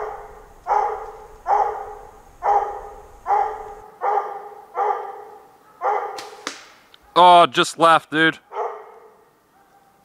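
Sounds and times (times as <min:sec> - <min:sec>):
dog barking: 0:00.0 - 0:06.2, 0:08.5 - 0:10.0.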